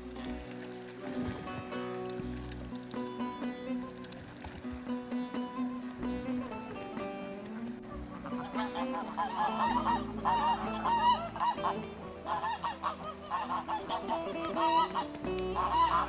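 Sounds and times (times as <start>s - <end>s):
geese honking: 0.0s - 16.0s.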